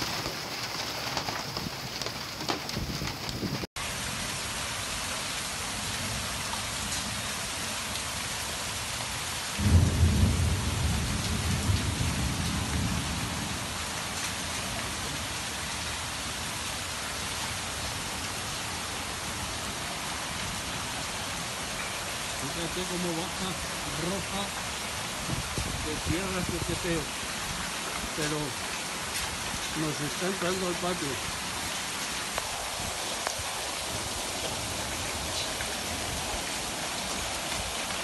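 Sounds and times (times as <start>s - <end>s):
heavy rain: 0.0s - 38.0s
rushing floodwater: 0.0s - 38.0s
thunderclap: 9.6s - 13.7s.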